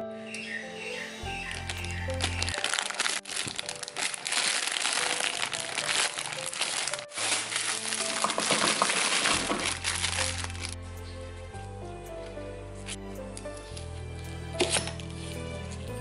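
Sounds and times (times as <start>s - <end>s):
background music: 0.0s - 16.0s
plastic bag crinkling: 1.4s - 10.8s.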